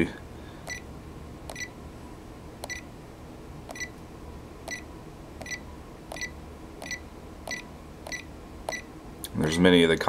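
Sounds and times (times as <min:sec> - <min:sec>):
keypad key clicks: 0:03.7 - 0:03.9, 0:05.4 - 0:08.8
short high beeps: 0:03.7 - 0:03.9.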